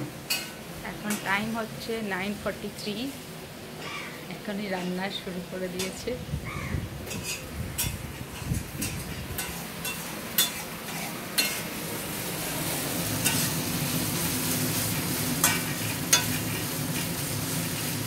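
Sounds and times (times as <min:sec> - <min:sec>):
metal spatula scraping a wok: 0:07.1 - 0:11.7
fish sizzling in oil: 0:07.2 - 0:18.0.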